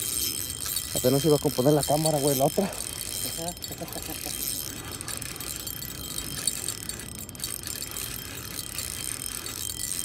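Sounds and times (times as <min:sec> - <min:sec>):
fishing reel clicking rapidly: 0:00.0 - 0:10.0.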